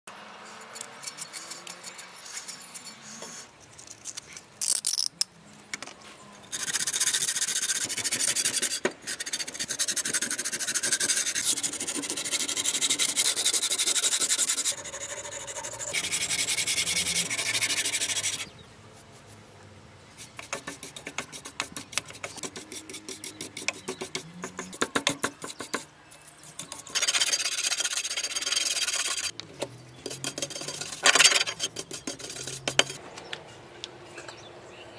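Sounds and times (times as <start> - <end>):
wire brush scraping metal: 6.5 - 18.5, 20.2 - 29.3, 29.9 - 33.0.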